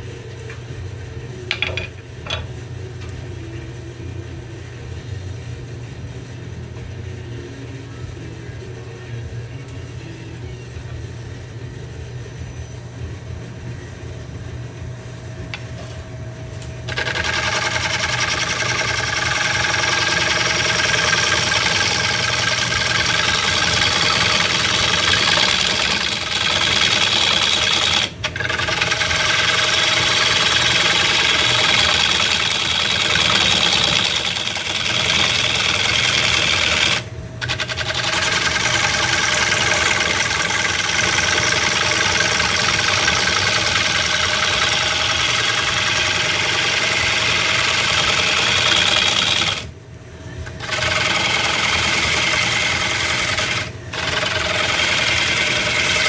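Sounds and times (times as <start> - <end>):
gouge scraping wood: 16.9 - 49.6, 50.6 - 56.0
wood lathe humming: 16.9 - 49.7, 50.4 - 56.0.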